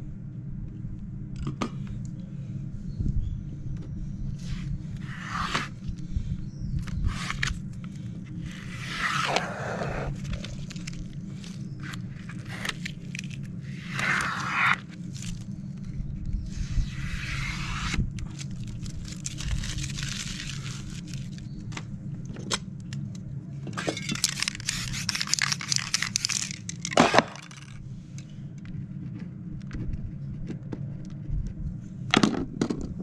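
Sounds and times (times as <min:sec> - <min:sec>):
low hum: 0:00.0 - 0:33.0
handling clicks and scrapes: 0:06.8 - 0:16.9, 0:23.7 - 0:31.6.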